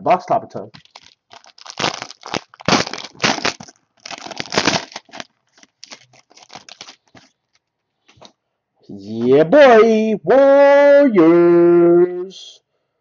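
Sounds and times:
plastic wrapper crinkling: 0.7s - 8.3s.

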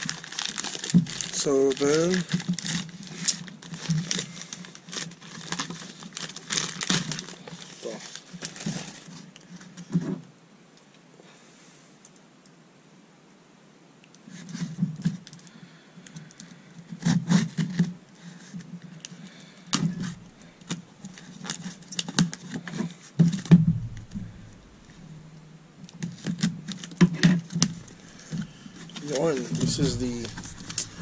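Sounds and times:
cardboard crackling and scraping: 0.0s - 10.2s, 26.0s - 31.0s.

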